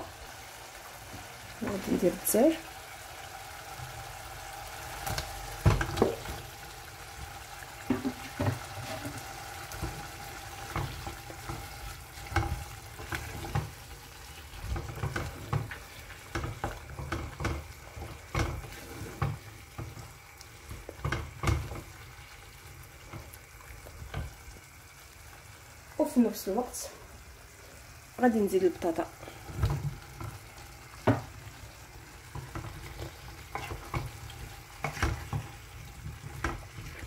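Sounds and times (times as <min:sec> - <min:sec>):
sauce sizzling: 0:00.0 - 0:37.0
wooden spoon knocking and scraping pot: 0:05.6 - 0:06.5, 0:07.8 - 0:24.5, 0:29.4 - 0:31.6, 0:32.2 - 0:37.0.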